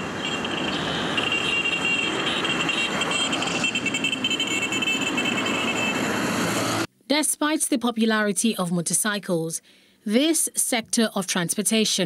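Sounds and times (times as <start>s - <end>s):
motorcycles and cars passing: 0.0s - 6.9s.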